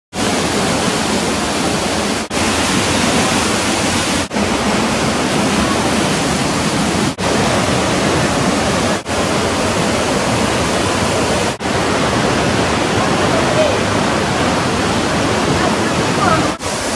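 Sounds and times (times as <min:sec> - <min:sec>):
waterfall splashing onto rocks: 0:00.2 - 0:14.4.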